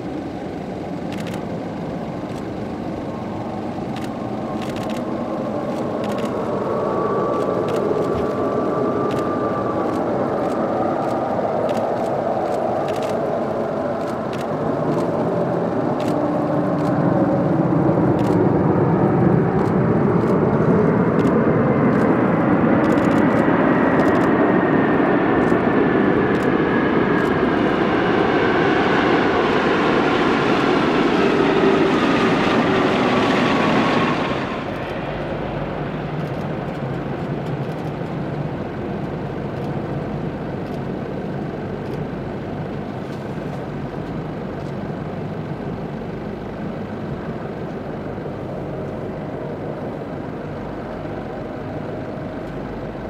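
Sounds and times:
jet engine reverse thrust roar: 0:00.0 - 0:53.0
quiet jet rumble: 0:00.0 - 0:53.0.

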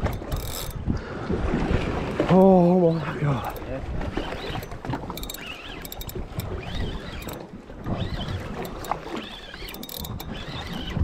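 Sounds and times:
water slapping boat hull: 0:00.0 - 0:11.0.

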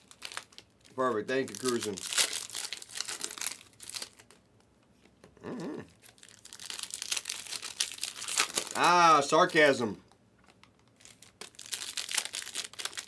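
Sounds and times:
plastic wrappers crinkling: 0:00.0 - 0:04.5, 0:06.0 - 0:09.2, 0:10.4 - 0:13.0.

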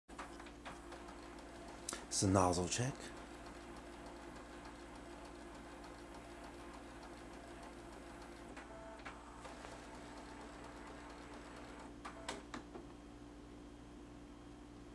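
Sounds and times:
printer humming: 0:00.1 - 0:12.6
small printer clicks: 0:00.2 - 0:02.1, 0:03.1 - 0:12.6.

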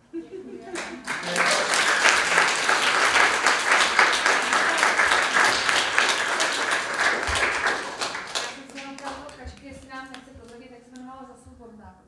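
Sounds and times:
audience applauding: 0:00.6 - 0:10.0.

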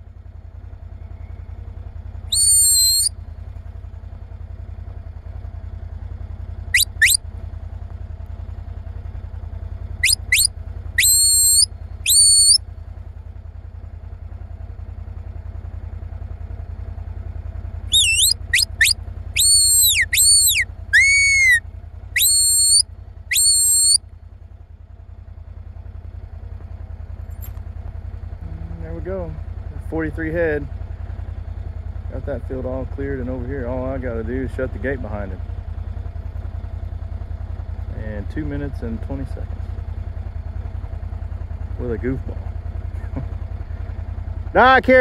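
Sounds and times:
high-pitched herding whistle: 0:02.3 - 0:03.1, 0:06.8 - 0:07.2, 0:10.0 - 0:12.6, 0:17.9 - 0:21.6, 0:22.2 - 0:24.0.

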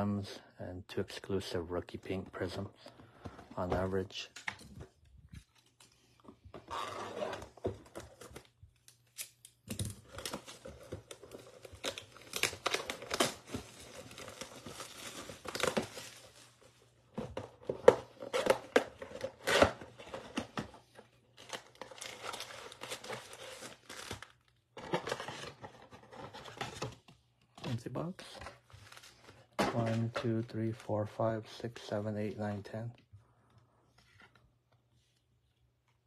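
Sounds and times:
plastic wrap crinkling and tearing: 0:07.4 - 0:16.8, 0:21.4 - 0:26.7.

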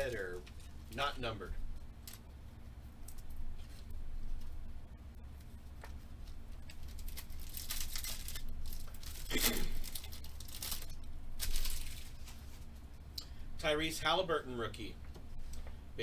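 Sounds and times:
foil wrapper tearing and crinkling: 0:06.7 - 0:12.4.

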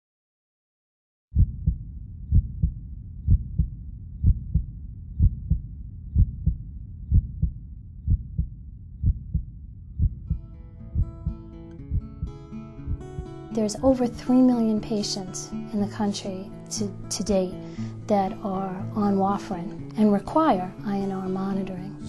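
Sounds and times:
heartbeat: 0:01.4 - 0:13.4
low rumble: 0:01.4 - 0:13.4
acoustic guitar music: 0:10.3 - 0:22.0.

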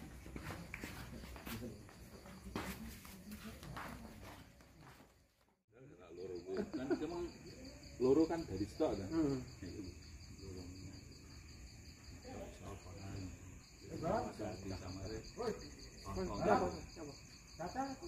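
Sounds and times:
crickets trilling: 0:05.8 - 0:18.0.

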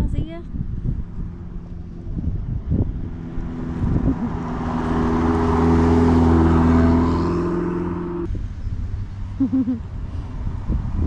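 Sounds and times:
sports car driving past: 0:00.8 - 0:08.3.

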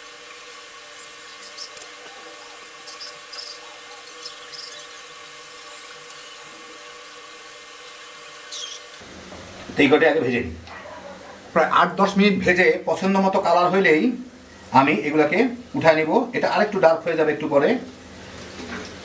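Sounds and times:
oil popping and crackling: 0:00.0 - 0:09.0
food deep-frying in oil: 0:00.0 - 0:09.8.

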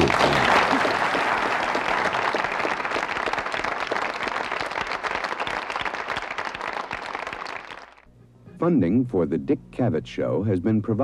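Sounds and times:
studio audience applauding: 0:00.0 - 0:08.1.

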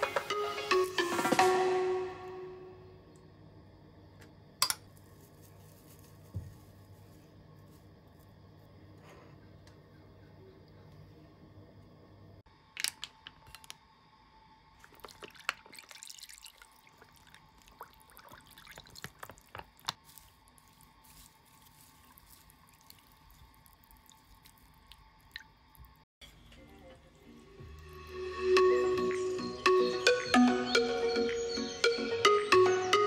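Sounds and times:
small splashes and clicks: 0:14.8 - 0:20.6, 0:21.5 - 0:26.0
broth trickling and dripping: 0:14.8 - 0:26.1.

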